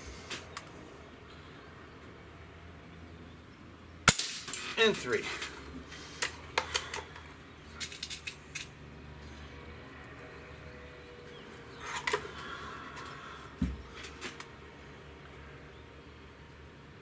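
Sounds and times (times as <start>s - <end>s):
air rifle clicks and clacks: 6.2s - 8.7s
short dull thump: 13.6s - 13.8s.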